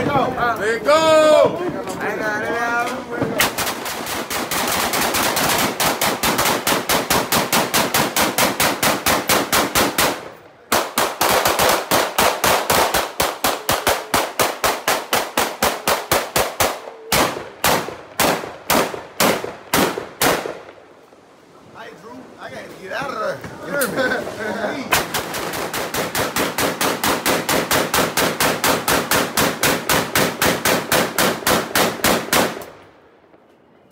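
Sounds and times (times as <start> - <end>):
rapid gunshots: 3.4 - 20.6, 24.9 - 32.6.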